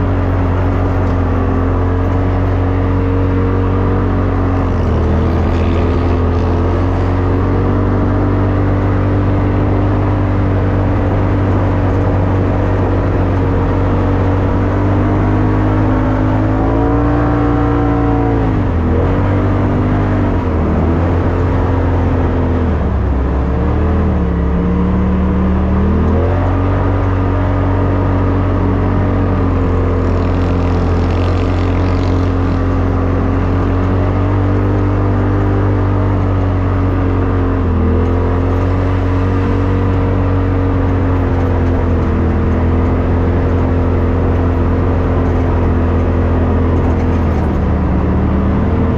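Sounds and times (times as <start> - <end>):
off-road vehicle engine running: 0.0 - 48.9.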